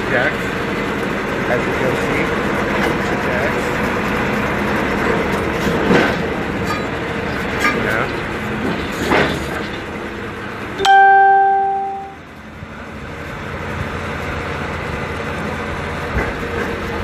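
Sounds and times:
drilling rig machinery running: 0:00.0 - 0:10.8, 0:12.0 - 0:17.0
loud bell-like ring: 0:10.8 - 0:12.2.

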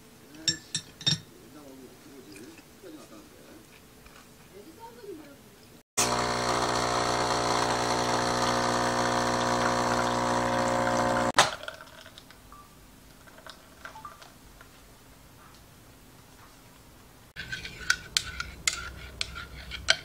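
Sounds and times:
coffee machine pump buzzing: 0:06.0 - 0:11.5.

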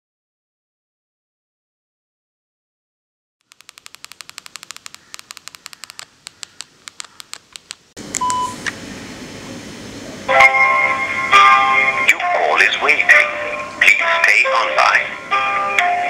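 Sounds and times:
short sharp clicks: 0:03.5 - 0:08.4
held tones: 0:03.5 - 0:08.6
steady hiss: 0:03.5 - 0:12.1
brief beep: 0:08.2 - 0:08.6.

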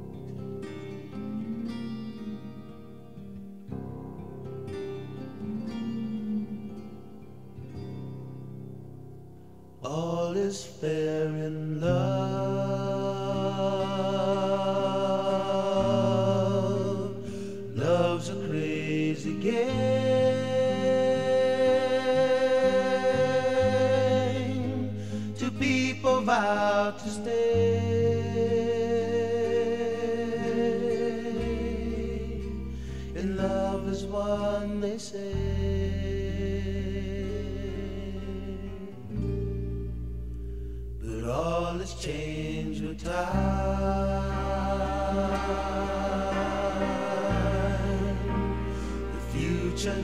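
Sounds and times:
song with held vocal notes: 0:00.0 - 0:03.8, 0:04.7 - 0:08.2, 0:09.7 - 0:39.4, 0:40.9 - 0:50.0
person singing: 0:05.3 - 0:07.4, 0:09.8 - 0:39.1, 0:41.0 - 0:50.0
song with chords and bass: 0:35.4 - 0:41.7, 0:42.7 - 0:50.0.

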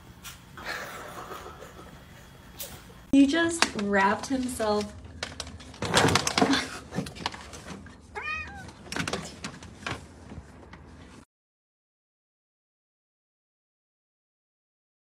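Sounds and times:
cat meowing: 0:08.1 - 0:08.8.

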